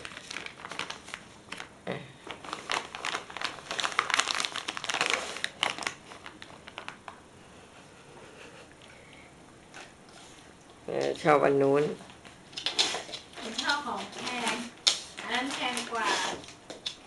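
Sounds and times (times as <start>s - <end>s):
plastic bag crinkling: 0.0s - 7.2s, 12.6s - 17.0s.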